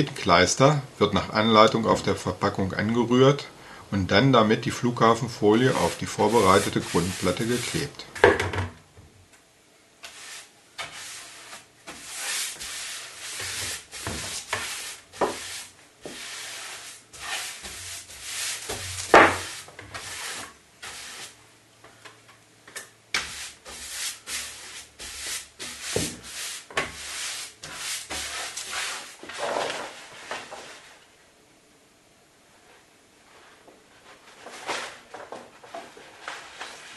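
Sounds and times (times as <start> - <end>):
paste brush scrubbing strokes: 5.4 - 7.9, 10.0 - 21.4, 23.2 - 29.2.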